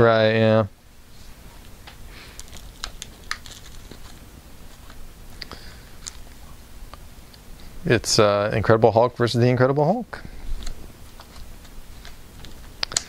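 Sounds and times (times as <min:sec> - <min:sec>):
plastic bags crinkling: 0:02.2 - 0:06.4.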